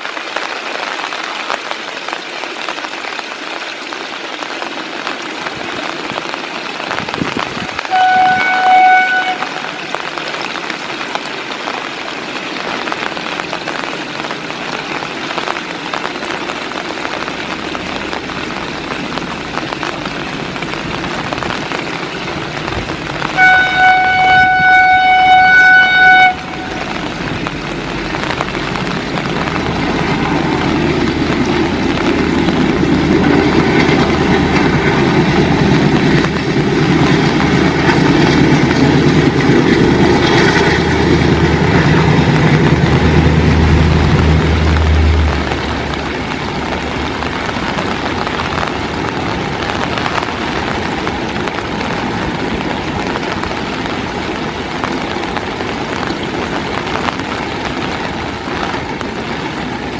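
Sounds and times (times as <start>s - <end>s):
heavy rain hissing: 0.0s - 59.9s
diesel locomotive engine: 5.4s - 11.5s, 12.7s - 59.9s
train horn: 7.9s - 10.0s, 23.4s - 27.2s.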